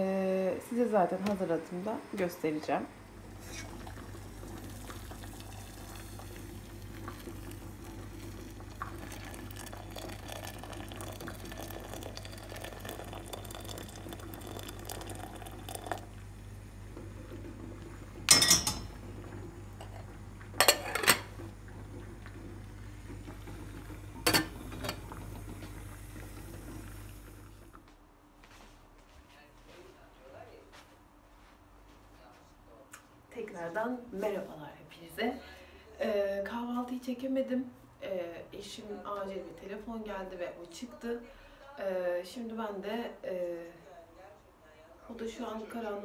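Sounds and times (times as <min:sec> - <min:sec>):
water running into metal pot: 0:03.3 - 0:16.1
metal pot clanking: 0:18.3 - 0:19.0, 0:20.6 - 0:21.3, 0:24.2 - 0:25.0.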